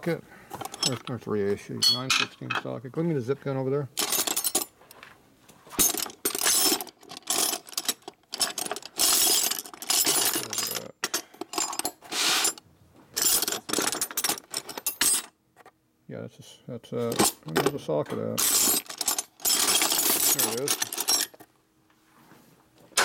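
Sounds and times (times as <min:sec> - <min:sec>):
hand tools clinking together: 0:00.6 - 0:01.2, 0:01.8 - 0:02.7, 0:04.0 - 0:04.7, 0:05.8 - 0:12.6, 0:17.1 - 0:21.4.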